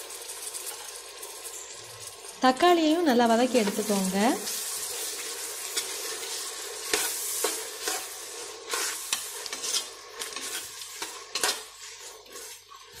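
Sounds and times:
vegetables sizzling in oil: 0.0 - 13.0
spatula scraping and knocking pot: 5.7 - 13.0.

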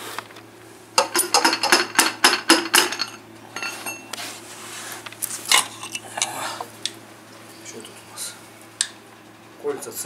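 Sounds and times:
metal engine parts clanking: 1.0 - 4.1
metallic ringing: 1.0 - 4.1.

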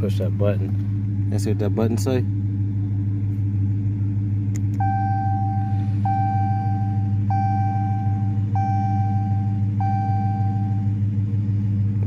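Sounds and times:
car engine idling: 0.0 - 12.0
dashboard warning chime: 4.8 - 11.0.

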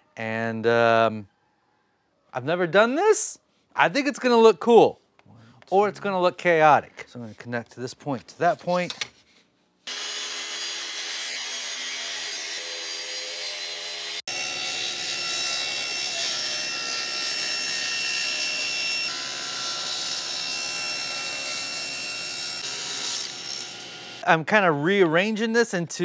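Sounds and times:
table saw ripping wood: 9.9 - 24.2
track saw whining: 9.9 - 24.2.

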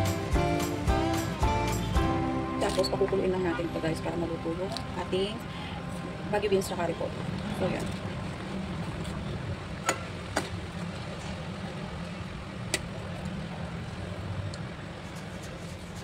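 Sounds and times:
steady low rumble: 0.0 - 15.1.

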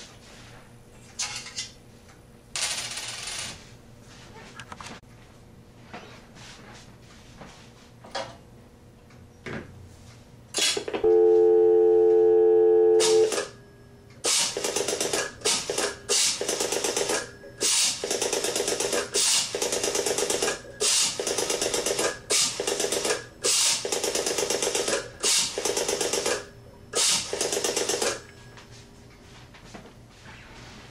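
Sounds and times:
telephone dial tone: 11.0 - 13.5.

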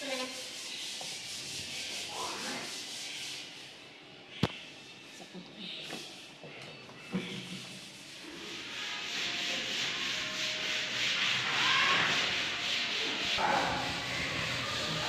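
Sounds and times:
rasping rubbing noise: 0.0 - 3.8, 7.2 - 15.0.

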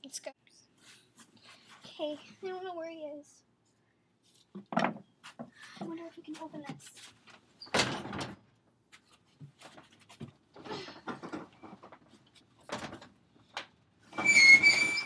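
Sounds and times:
high steady squeak: 14.2 - 15.0.

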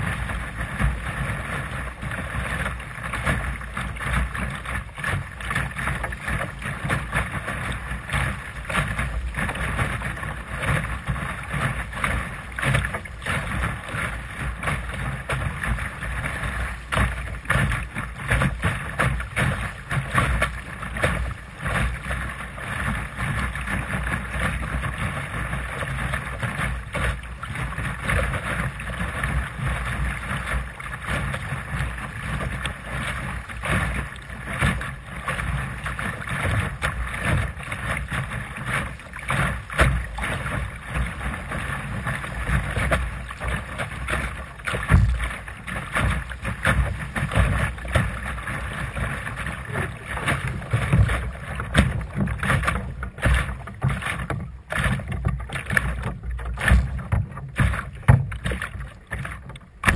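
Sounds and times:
water slapping against hull: 0.0 - 59.9.

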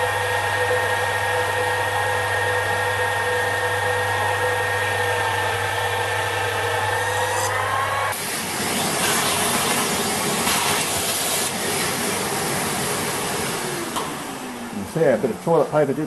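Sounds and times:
lathe motor and spindle whine: 0.0 - 15.2
boring bar cutting steel: 5.6 - 11.6.

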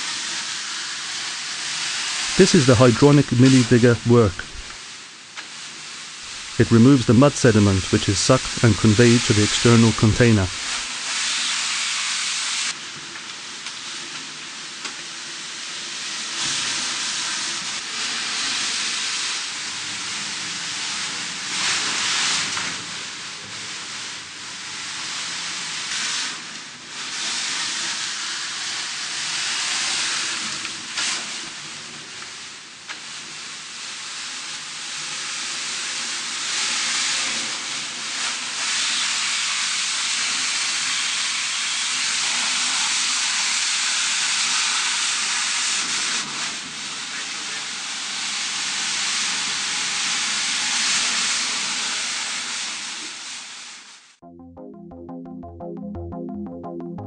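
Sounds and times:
suction hose rushing hiss: 0.0 - 12.8.

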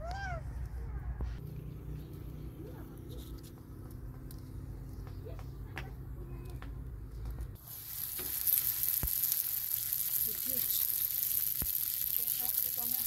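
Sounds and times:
dough sizzling in oil: 7.6 - 13.0.

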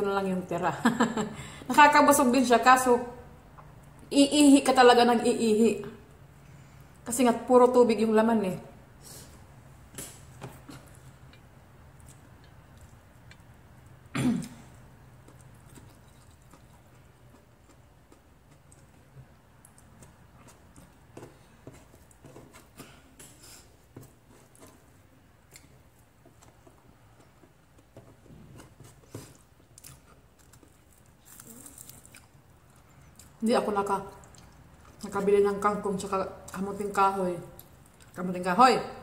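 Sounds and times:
chewing: 10.7 - 14.0, 15.2 - 21.1, 24.3 - 33.4, 34.0 - 35.2.

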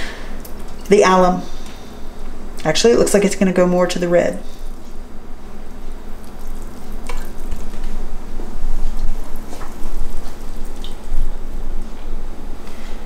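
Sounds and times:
liquid trickling into jar: 5.8 - 7.9, 8.9 - 11.3.

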